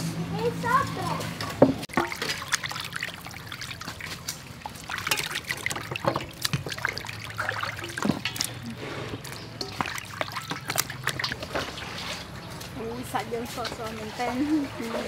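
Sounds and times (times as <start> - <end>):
water splashing in metal bowl: 1.4 - 15.0.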